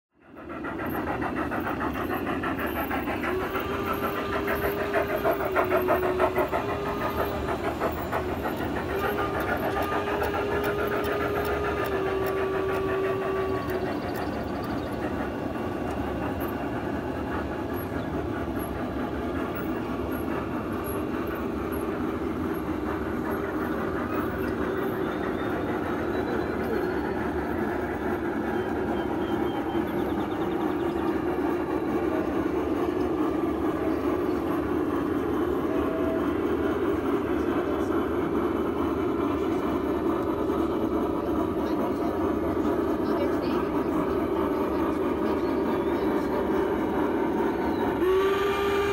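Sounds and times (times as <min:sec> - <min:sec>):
model train wheels clicking on rails: 0:00.2 - 0:48.9
steam whistle blasts: 0:08.9 - 0:14.5, 0:47.9 - 0:48.9.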